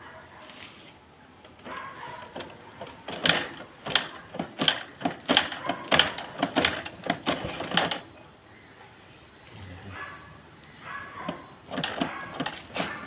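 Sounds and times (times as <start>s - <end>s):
sharp mechanical clacks from wheel: 1.5s - 8.1s, 11.2s - 13.0s.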